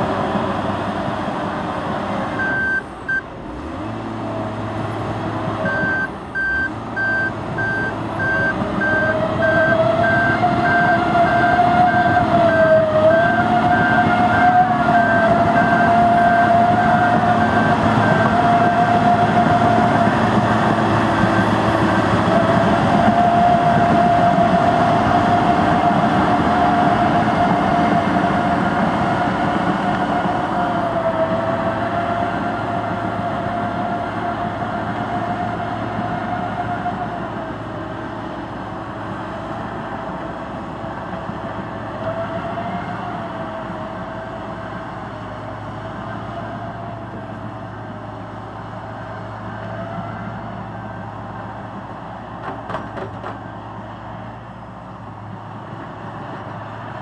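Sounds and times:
bulldozer engine whining: 0.0s - 57.0s
reversing alarm beeping: 2.4s - 3.2s, 5.6s - 12.7s.

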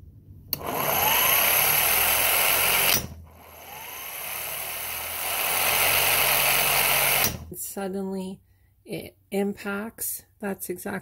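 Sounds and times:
impact wrench motor whining: 0.6s - 7.5s.

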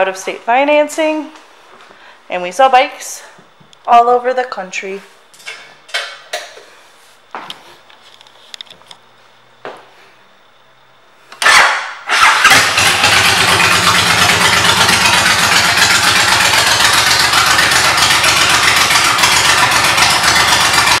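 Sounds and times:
motorcycle engine starting and idling: 11.3s - 21.0s.

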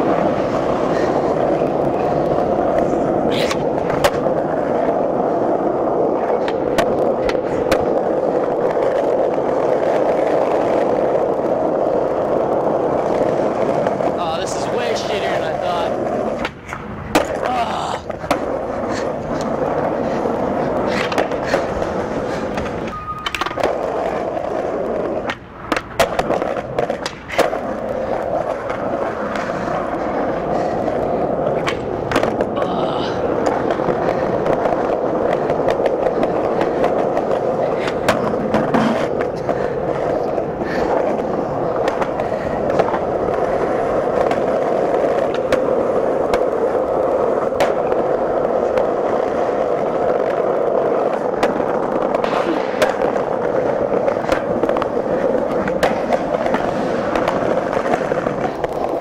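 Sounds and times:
skateboard clacking on ground: 0.0s - 59.0s
skateboard wheels rolling on pavement: 0.0s - 59.0s.

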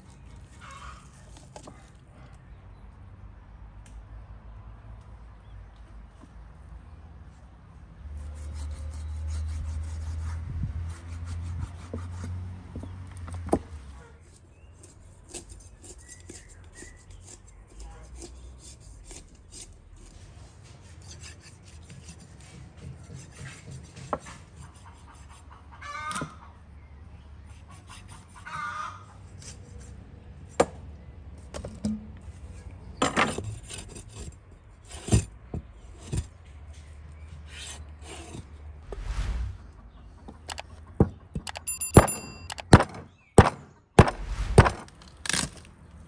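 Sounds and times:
knife sawing through meat: 8.2s - 12.3s.

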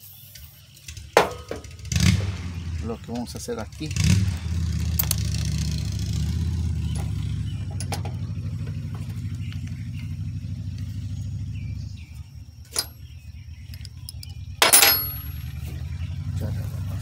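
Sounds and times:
low engine drone: 1.6s - 17.0s
hand tools clicking on metal: 12.7s - 13.0s, 13.7s - 15.4s
sharp ringing metal clink: 12.7s - 15.6s.

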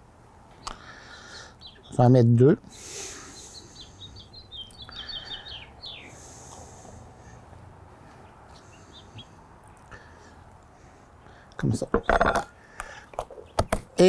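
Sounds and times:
faint outdoor hiss: 0.0s - 14.0s
small bird singing: 0.6s - 7.4s, 8.1s - 10.2s.

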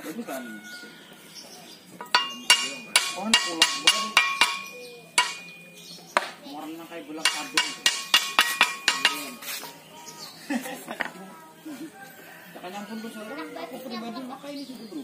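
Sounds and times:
hammer striking metal blade: 2.0s - 6.3s, 7.2s - 9.4s.

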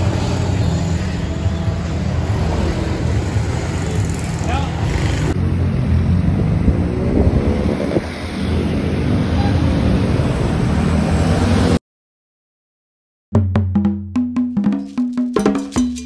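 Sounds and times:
vehicle rumble: 0.0s - 11.8s
wind on microphone: 6.4s - 8.4s.

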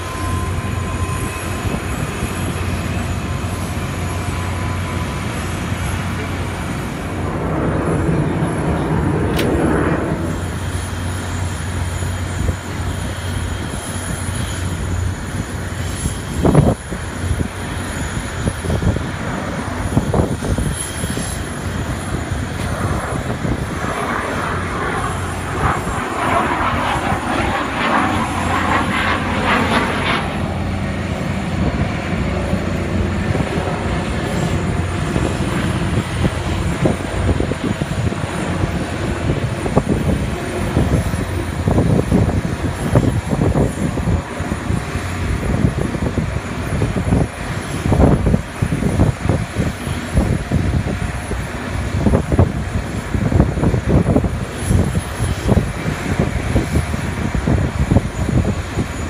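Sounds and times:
fighter jet engine: 0.0s - 59.0s.

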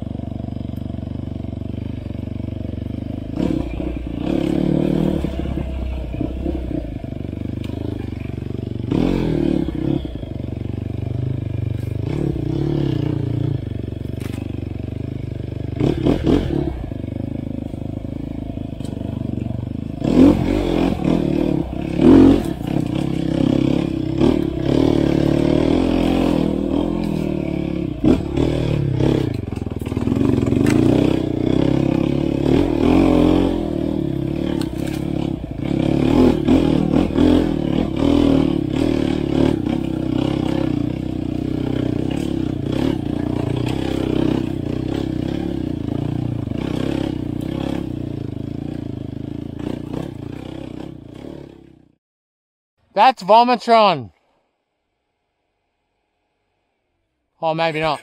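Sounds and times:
dirt bike engine revving: 0.0s - 52.0s
bike knocks and clatter: 29.1s - 31.2s.

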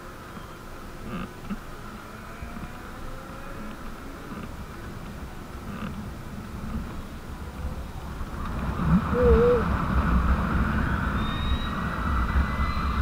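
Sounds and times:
high motor whine: 0.0s - 13.0s
tyre and road noise: 0.0s - 13.0s
wind rushing over microphone: 0.8s - 13.0s.

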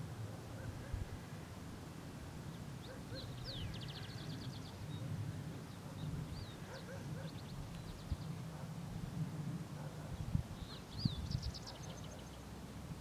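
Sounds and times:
small songbirds singing: 2.5s - 8.5s, 10.1s - 12.5s.

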